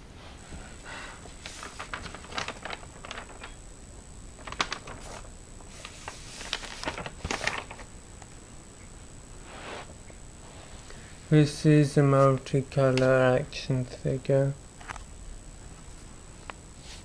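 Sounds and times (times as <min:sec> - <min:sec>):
paper pages rustling: 0:01.3 - 0:03.6, 0:04.4 - 0:07.9.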